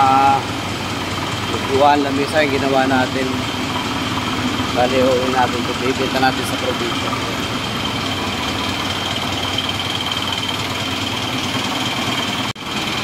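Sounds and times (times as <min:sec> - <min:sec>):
ship engines droning: 0:00.0 - 0:13.0.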